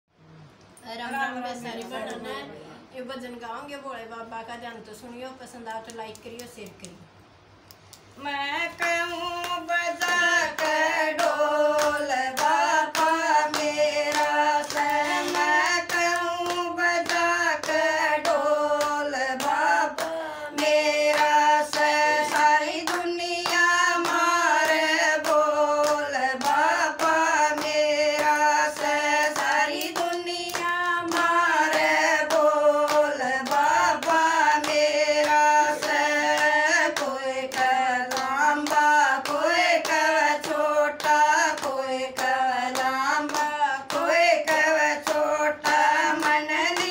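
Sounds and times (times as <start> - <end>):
hand clapping: 5.8 - 7.0, 8.8 - 46.9
women singing devotional song: 8.0 - 46.9.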